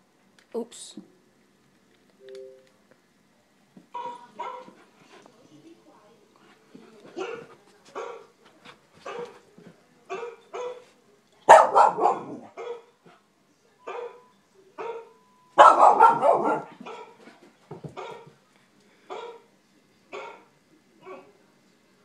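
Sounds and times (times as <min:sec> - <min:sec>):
dog on television: 0:03.4 - 0:22.0
dog barking: 0:04.0 - 0:04.8, 0:07.2 - 0:08.3, 0:09.0 - 0:09.4, 0:10.1 - 0:10.9, 0:11.5 - 0:13.0, 0:13.8 - 0:17.2, 0:18.0 - 0:18.3, 0:19.1 - 0:19.5, 0:20.1 - 0:21.3.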